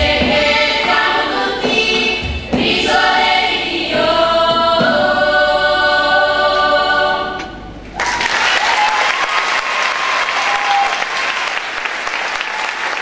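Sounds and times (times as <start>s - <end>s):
choir singing chord: 0.0s - 7.6s
audience applauding: 8.0s - 13.0s.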